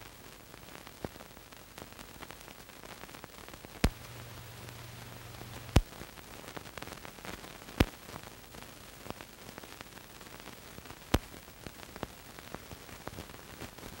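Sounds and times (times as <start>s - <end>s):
crackles: 0.0s - 14.0s
film soundtrack surface hiss: 0.0s - 14.0s
sharp pops: 3.8s - 6.0s.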